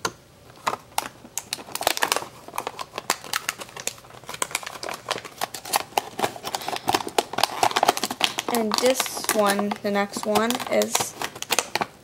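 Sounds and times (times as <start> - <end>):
plastic packaging crinkling: 0.5 - 12.0.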